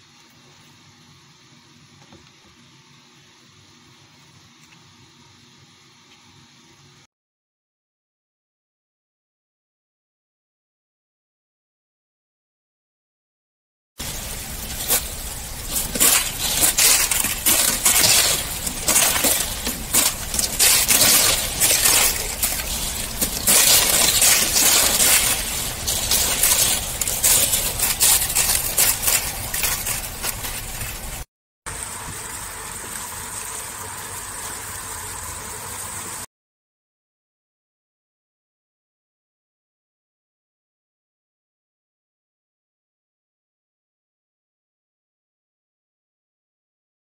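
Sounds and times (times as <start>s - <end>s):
ice cracking and tinkling: 14.0s - 31.2s
steady hiss: 14.0s - 33.5s.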